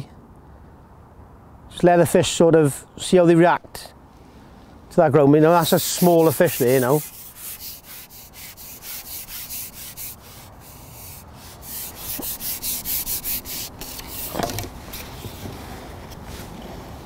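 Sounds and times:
fishing pole rubbing rasps: 0:05.6 - 0:14.6.

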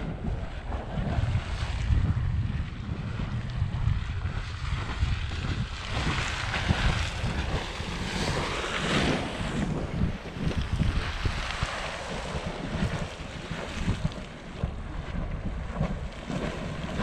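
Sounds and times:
wind buffeting microphone: 0:00.0 - 0:17.0
geyser hissing and splashing: 0:00.2 - 0:17.0.

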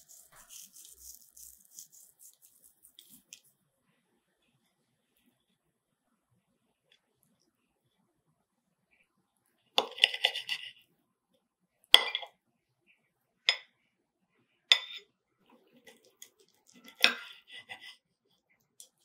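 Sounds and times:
soft cutlery ticks and scrapes: 0:00.0 - 0:03.5, 0:09.8 - 0:10.8, 0:14.7 - 0:18.0, 0:18.6 - 0:19.0
cutlery clinking on a ceramic plate: 0:14.7 - 0:15.1, 0:16.6 - 0:17.9.

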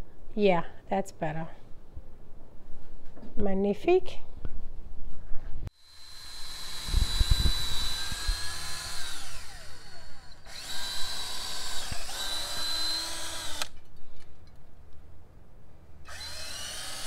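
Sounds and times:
cordless drill drilling into wood: 0:05.8 - 0:13.8, 0:16.1 - 0:17.0.

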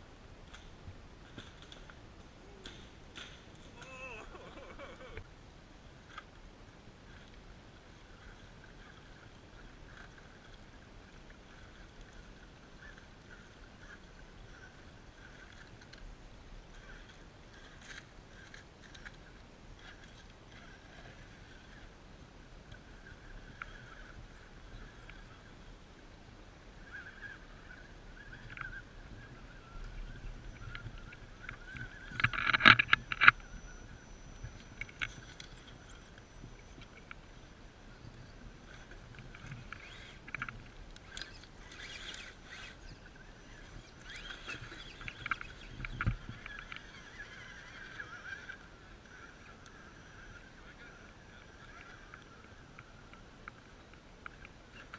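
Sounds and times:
small electric motor whirring: 0:38.7 - 0:49.3.

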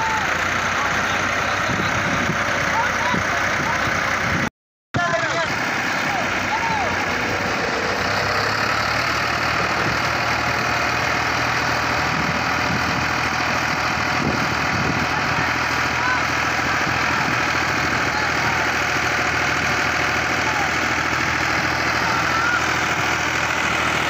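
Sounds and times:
tractor diesel engine idling: 0:00.0 - 0:24.0
faint voices calling: 0:05.0 - 0:24.0.

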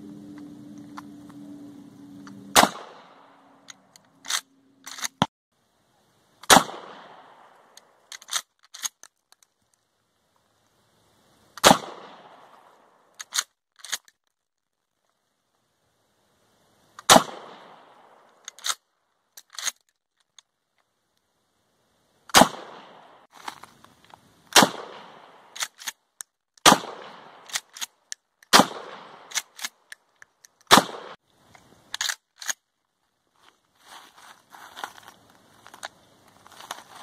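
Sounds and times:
shotgun shots with echo: 0:02.5 - 0:03.2, 0:06.5 - 0:07.5, 0:11.6 - 0:12.4, 0:17.1 - 0:17.8, 0:22.3 - 0:23.1, 0:24.6 - 0:25.4, 0:26.6 - 0:27.5, 0:28.5 - 0:29.3, 0:30.7 - 0:31.2.

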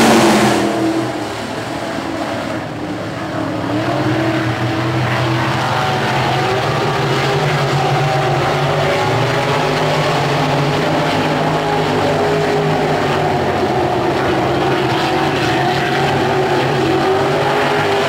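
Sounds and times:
distant race car engines droning: 0:00.0 - 0:18.0.

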